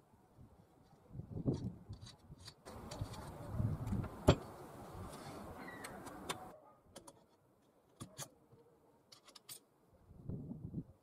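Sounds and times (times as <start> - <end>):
metal clinks of bolts handled: 9.1 - 9.7.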